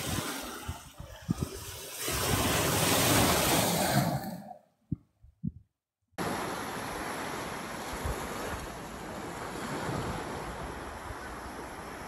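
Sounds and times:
wind gusting on microphone: 0.0s - 4.1s
waves on rocky shore: 0.0s - 4.6s, 6.2s - 12.0s.

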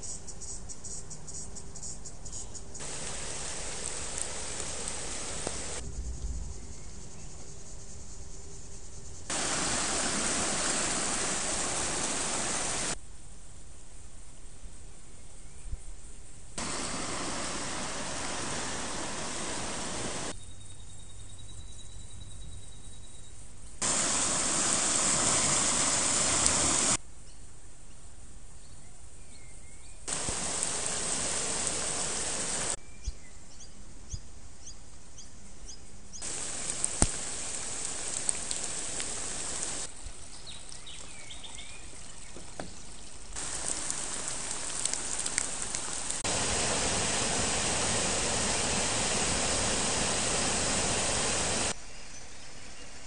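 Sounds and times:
creek water rushing: 2.8s - 5.8s, 9.3s - 13.0s, 16.6s - 20.3s, 23.8s - 27.0s, 30.1s - 32.8s, 36.2s - 51.8s
raindrops tapping: 2.8s - 5.8s, 9.3s - 13.0s, 30.1s - 32.8s, 36.2s - 51.7s
birds calling: 9.1s - 13.0s, 16.6s - 20.9s, 29.3s - 33.8s, 34.6s - 52.3s.

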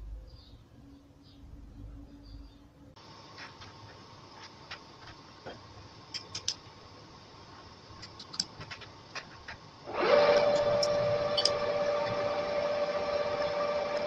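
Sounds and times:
faint steady hum: 0.0s - 14.0s
faint clicks and metal knocks: 4.7s - 6.6s, 7.9s - 9.7s.

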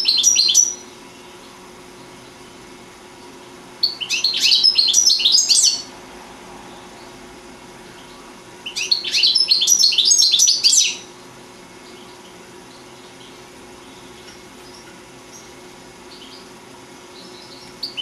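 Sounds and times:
finch twittering: 0.0s - 2.4s, 3.2s - 5.9s, 7.9s - 11.1s, 11.8s - 16.5s, 17.1s - 18.0s.

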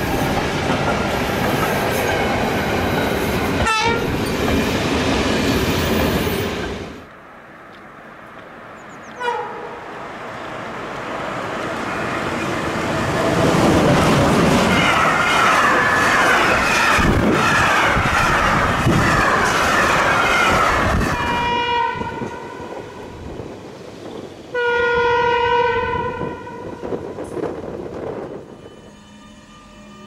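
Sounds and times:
train passing at speed: 0.0s - 30.0s
train horn blast: 3.6s - 4.1s, 9.2s - 9.8s, 21.0s - 23.1s, 24.5s - 27.0s, 28.3s - 30.0s.

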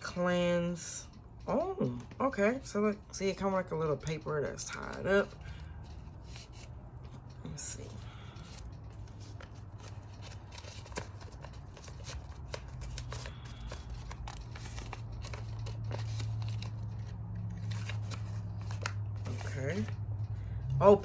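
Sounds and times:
steady low hum: 0.0s - 21.0s
paper rustling and crinkling: 4.7s - 7.3s, 8.0s - 20.0s.

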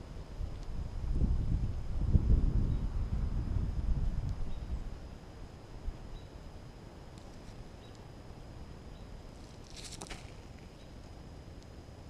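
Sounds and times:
low wind rumble: 0.0s - 12.0s
hawk rustling: 9.3s - 11.2s.

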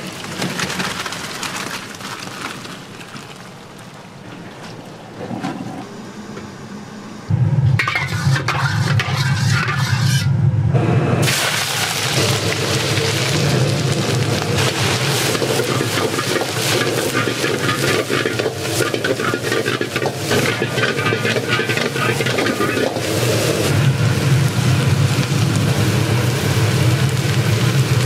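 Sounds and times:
gas flame roaring: 3.7s - 28.0s
wok sizzling and hissing: 6.1s - 28.0s.

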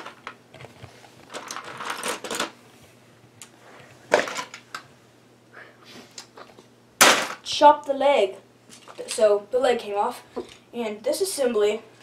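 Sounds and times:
plastic pieces clattering: 1.3s - 2.5s.

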